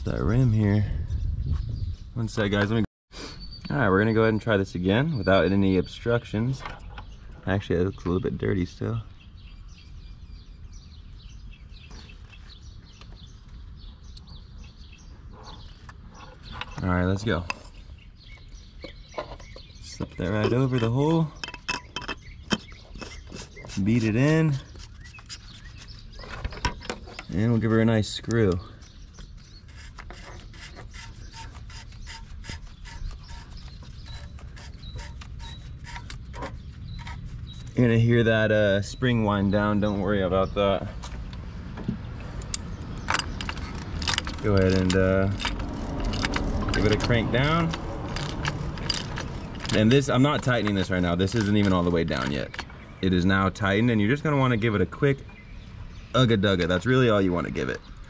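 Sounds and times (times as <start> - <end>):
small birds chirping: 0.0 - 58.0
cap threads clicking and rubbing: 29.2 - 37.8, 42.4 - 52.7.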